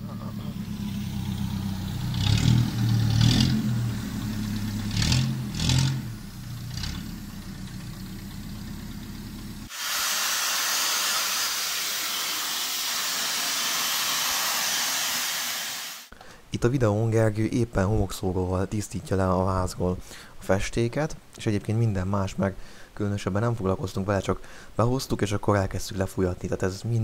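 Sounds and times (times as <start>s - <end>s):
forklift engine revving: 0.0s - 9.7s
sandblaster hissing: 9.7s - 16.1s.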